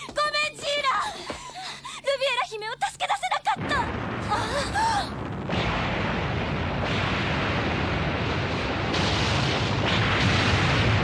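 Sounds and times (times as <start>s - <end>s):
cartoon building collapsing rumble: 3.6s - 11.0s.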